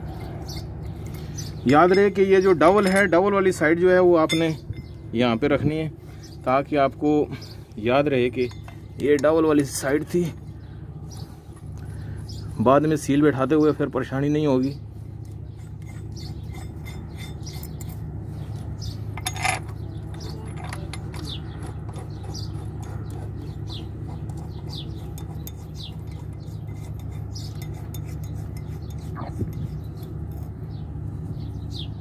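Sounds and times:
steady low hum: 0:00.0 - 0:32.0
metal bolts clinking and scraping: 0:00.2 - 0:05.0, 0:08.3 - 0:10.4, 0:15.6 - 0:23.2.

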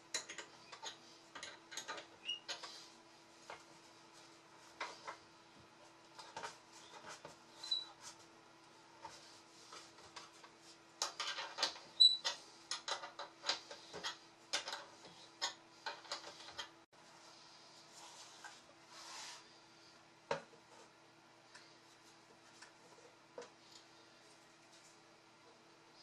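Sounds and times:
faint steady hum: 0:00.0 - 0:26.0
short high squeaks: 0:06.9 - 0:08.0.

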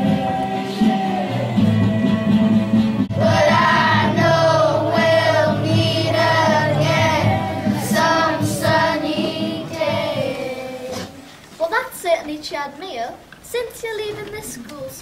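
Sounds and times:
children singing: 0:00.0 - 0:11.3
instrumental backing music: 0:00.0 - 0:11.4.

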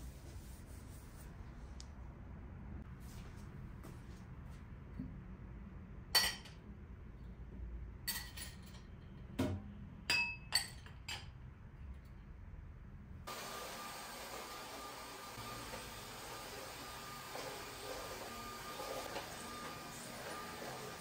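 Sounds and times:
glass dishes clinking on steel rack: 0:06.2 - 0:06.6, 0:08.1 - 0:08.9, 0:10.1 - 0:11.3.

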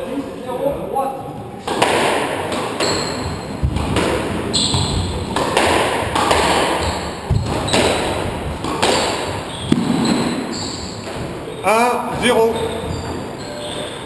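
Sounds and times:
squash ball smacking: 0:01.6 - 0:11.5
shoe squeak on wooden floor: 0:02.8 - 0:03.6, 0:04.4 - 0:05.3, 0:06.8 - 0:08.4, 0:09.2 - 0:14.0.

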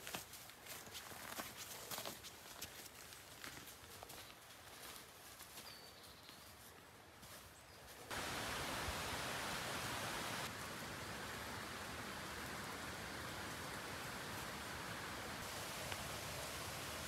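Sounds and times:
steady rushing hiss: 0:08.1 - 0:17.0.

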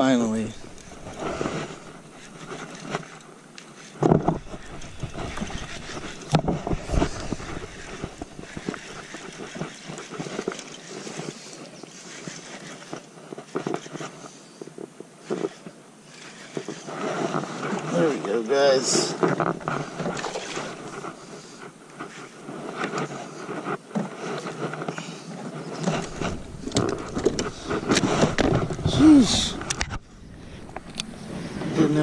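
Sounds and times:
water: 0:00.0 - 0:24.6
wind: 0:00.0 - 0:32.0.

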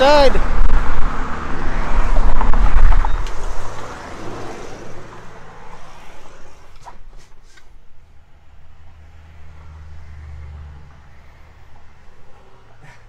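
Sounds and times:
wind rumble: 0:00.0 - 0:07.2
road traffic: 0:00.0 - 0:13.0.

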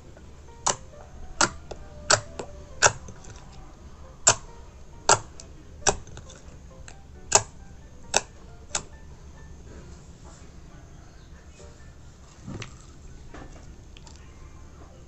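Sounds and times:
slime popping and clicking: 0:04.2 - 0:09.0.

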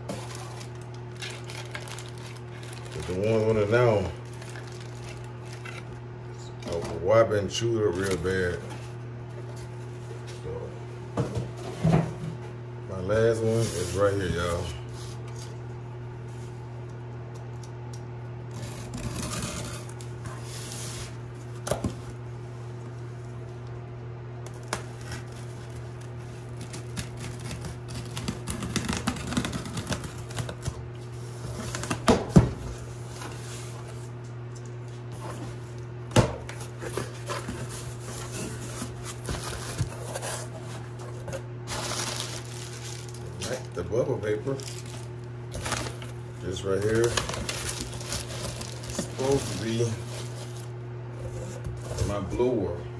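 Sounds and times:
steady low hum: 0:00.0 - 0:52.9
cardboard tearing: 0:00.1 - 0:05.8, 0:18.5 - 0:20.0, 0:26.4 - 0:30.8, 0:36.6 - 0:43.7, 0:44.5 - 0:46.1, 0:46.7 - 0:50.7.

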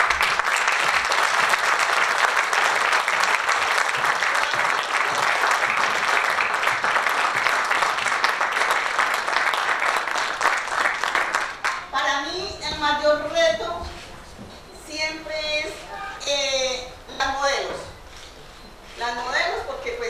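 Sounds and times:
audience applause: 0:00.0 - 0:11.9.

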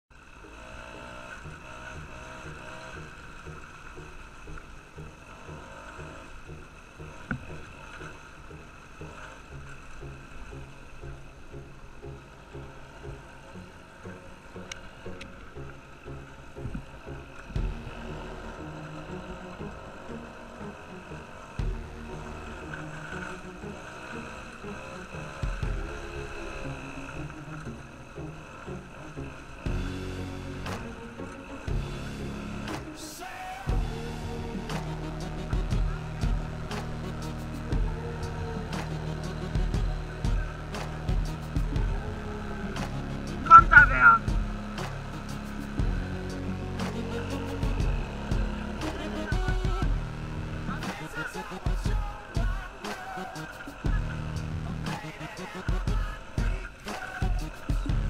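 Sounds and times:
wind and tyre hiss: 0:00.1 - 0:58.0
small two-stroke engine running: 0:00.2 - 0:32.8.

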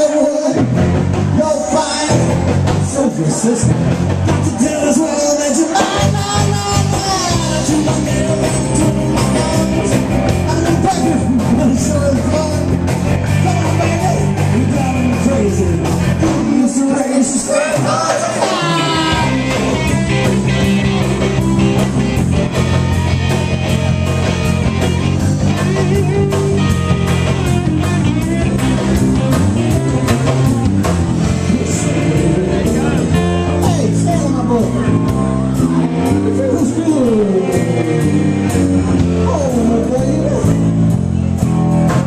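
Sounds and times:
rock band playing live: 0:00.0 - 0:42.0
electric guitar run: 0:19.1 - 0:39.3.

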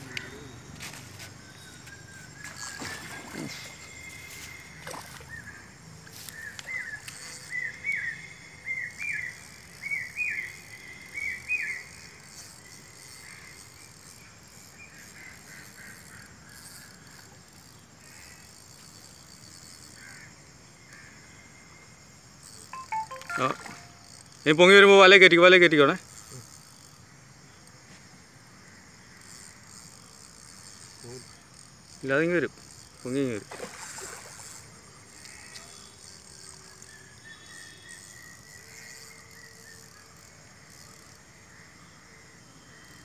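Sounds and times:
quiet outdoor background: 0:00.0 - 0:43.0
bird calling sharp repeated notes: 0:22.7 - 0:24.3.

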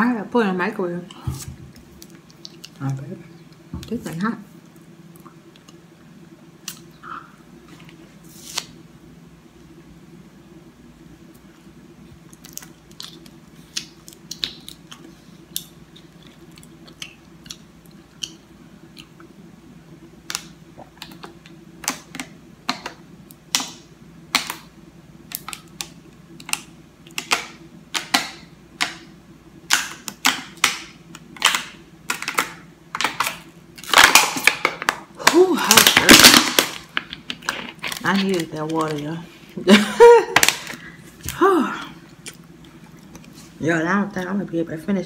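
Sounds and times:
plastic bottle crackling: 0:33.0 - 0:39.2.

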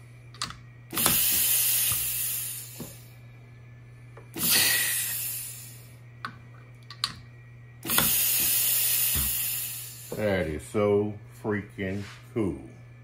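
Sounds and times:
compressed air hissing blasts: 0:00.9 - 0:03.1, 0:04.3 - 0:05.9, 0:07.8 - 0:10.3.

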